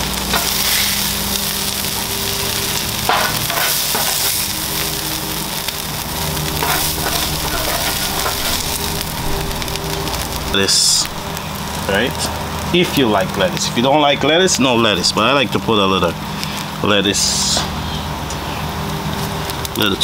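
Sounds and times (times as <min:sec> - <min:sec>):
food sizzling on a griddle: 0:00.0 - 0:20.0
metal spatula scraping griddle: 0:02.8 - 0:04.9, 0:06.5 - 0:10.3.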